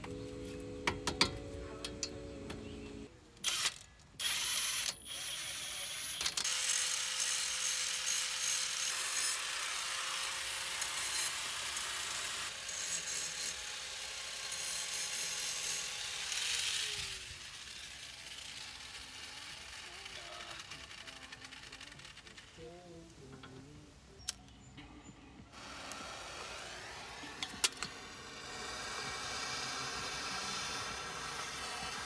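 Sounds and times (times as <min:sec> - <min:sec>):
cordless power tool motor: 0:03.4 - 0:22.3, 0:25.6 - 0:32.0.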